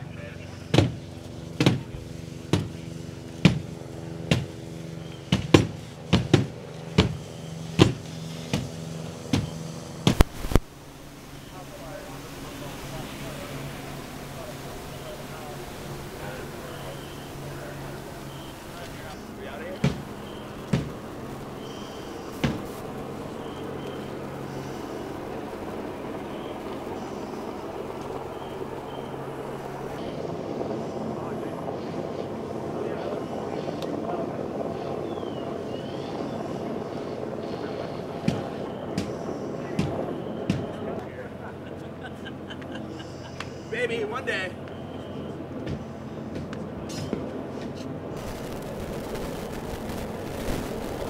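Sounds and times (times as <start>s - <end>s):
continuous rushing noise: 0.0s - 51.0s
engine hum: 0.0s - 51.0s.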